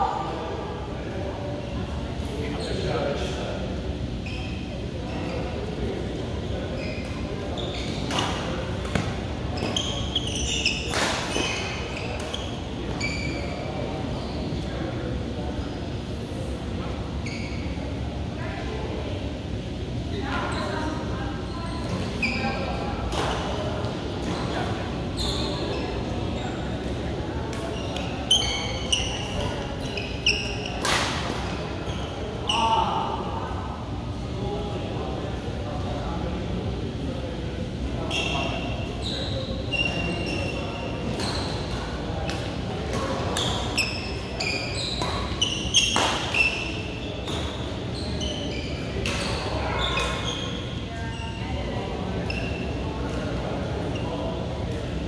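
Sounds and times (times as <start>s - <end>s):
sneaker squeaks on court: 6.8s - 14.6s, 25.2s - 26.6s, 27.7s - 31.2s, 38.1s - 41.8s, 42.9s - 51.4s.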